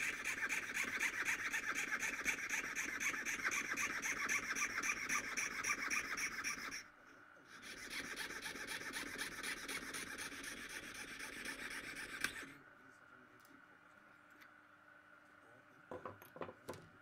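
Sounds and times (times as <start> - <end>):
piercing saw rasping: 0.0 - 6.8, 7.6 - 12.4.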